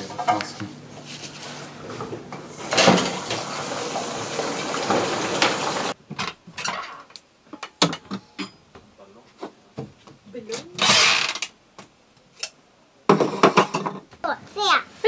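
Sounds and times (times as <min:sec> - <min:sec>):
tap water running into sink: 0:02.5 - 0:06.0.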